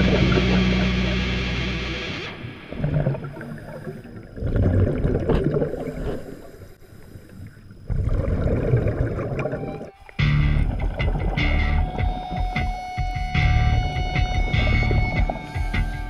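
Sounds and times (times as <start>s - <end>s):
diver's exhaled air bubbling: 2.6s - 9.9s.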